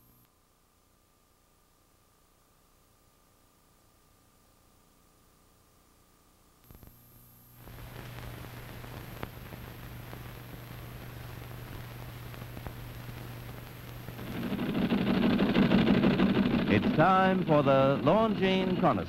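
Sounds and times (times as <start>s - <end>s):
film soundtrack hiss and hum: 0.0s - 19.0s
faint crackles: 6.6s - 19.0s.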